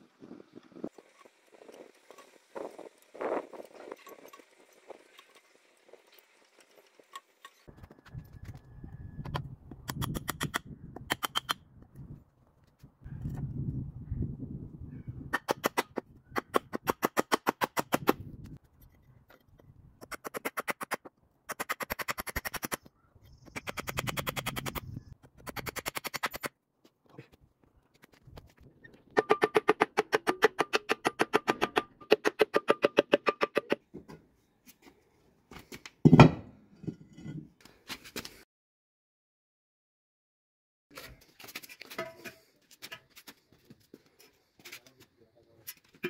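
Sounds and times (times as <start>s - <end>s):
concrete block thud on tiled floor: 36.0s - 37.4s.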